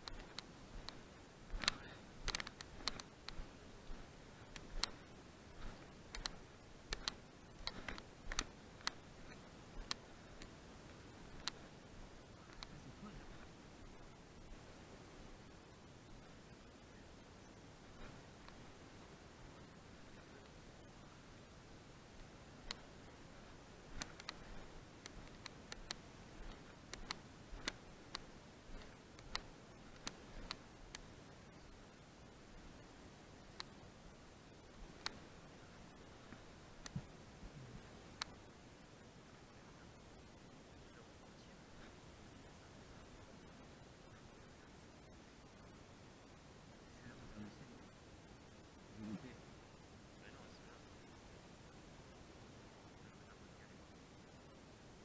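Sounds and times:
footsteps crackling dry twigs: 0:00.0 - 0:11.6, 0:22.6 - 0:30.6
faint steady hiss: 0:00.0 - 0:55.0.

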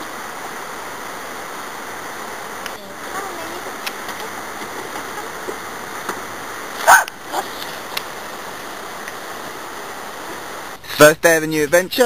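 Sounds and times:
steady rushing noise: 0:00.0 - 0:12.0
parrot harsh call: 0:06.8 - 0:07.6.

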